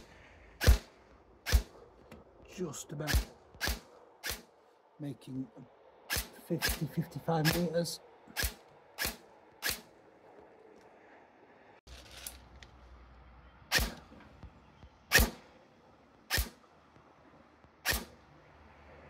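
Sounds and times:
airsoft gun shots popping: 0:00.6 - 0:01.8, 0:03.1 - 0:04.5, 0:15.1 - 0:15.4, 0:16.3 - 0:16.6, 0:17.8 - 0:18.1.

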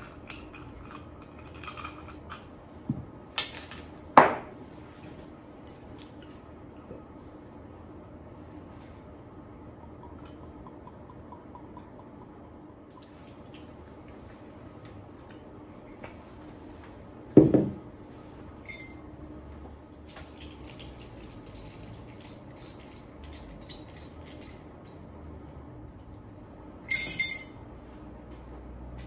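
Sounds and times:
spoon stirring ice cubes: 0:00.0 - 0:02.4
ringing glass clink: 0:18.6 - 0:19.1, 0:26.9 - 0:27.6.

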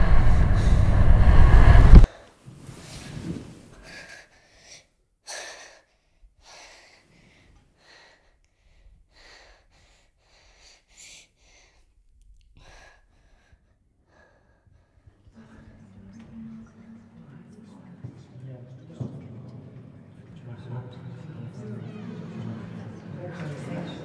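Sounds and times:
girl breathing in shaky gasps: 0:03.8 - 0:12.0, 0:12.6 - 0:15.1.

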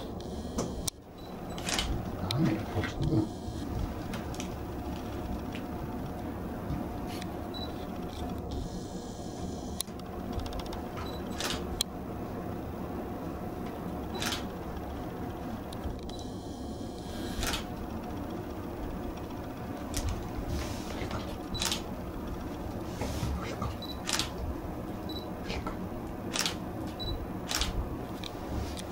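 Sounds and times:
low room hum: 0:00.0 - 0:28.9
camera shutter clicking: 0:24.0 - 0:24.3, 0:26.3 - 0:26.6, 0:27.5 - 0:27.8.

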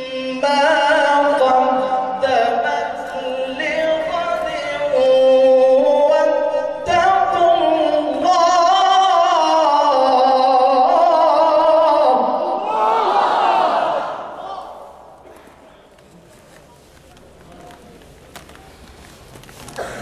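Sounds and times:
man chanting through a microphone: 0:00.0 - 0:12.7.

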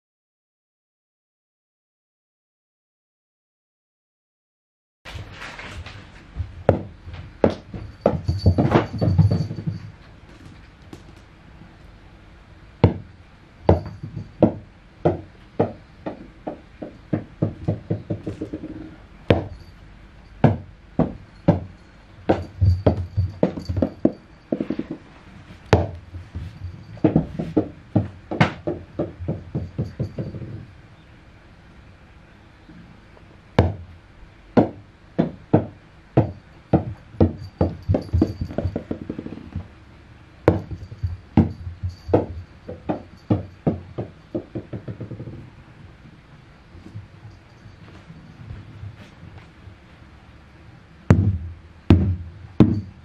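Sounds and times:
rubber balls bouncing on wood: 0:06.4 - 0:11.3, 0:12.8 - 0:13.1, 0:13.7 - 0:19.7, 0:20.4 - 0:30.7, 0:34.6 - 0:39.7, 0:40.5 - 0:45.5, 0:51.1 - 0:53.0.

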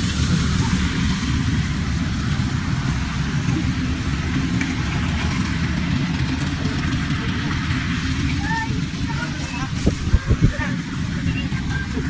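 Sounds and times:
combine harvester rumbling: 0:00.0 - 0:12.0.

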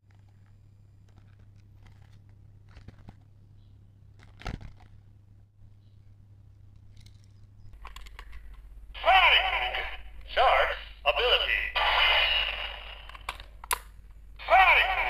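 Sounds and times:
plastic toy and box rustling: 0:00.0 - 0:03.4, 0:04.1 - 0:05.0, 0:06.7 - 0:08.6.

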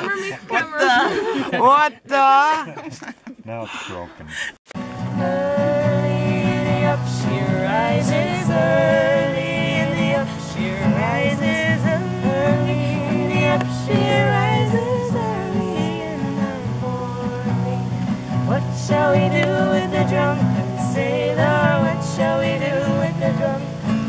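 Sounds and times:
acoustic guitar chords: 0:04.7 - 0:24.0
woman singing: 0:05.0 - 0:24.0.

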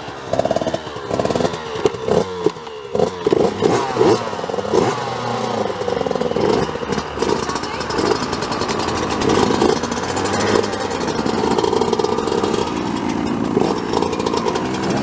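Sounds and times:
motocross bike engines revving: 0:00.0 - 0:15.0.

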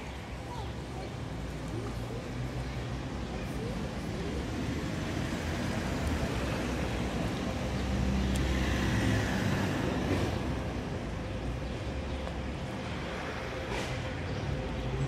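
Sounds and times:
road traffic going by: 0:00.0 - 0:15.0.

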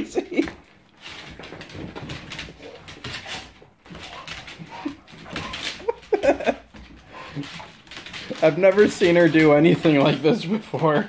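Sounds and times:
claws scrabbling on hardwood floor: 0:00.3 - 0:10.8
dog whimpering: 0:04.0 - 0:06.0.

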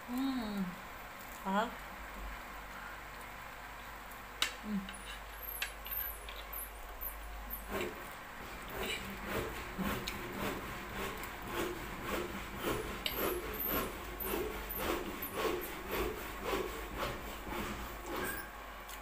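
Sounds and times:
hand saw cutting wood: 0:07.5 - 0:18.5.

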